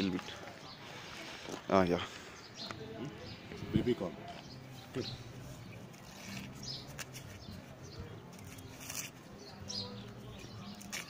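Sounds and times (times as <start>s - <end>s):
corn husk leaves tearing: 8.3s - 9.2s, 10.6s - 11.0s.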